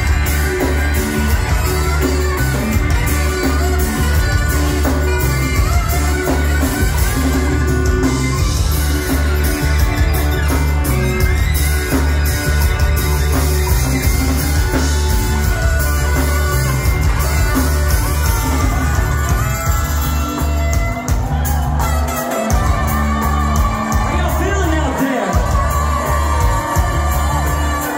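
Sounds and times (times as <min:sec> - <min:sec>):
saxophone: 0:00.0 - 0:24.2
drums: 0:00.0 - 0:27.9
electric guitars: 0:00.0 - 0:27.9
heavy bass: 0:00.0 - 0:27.9
keyboards: 0:00.0 - 0:27.9.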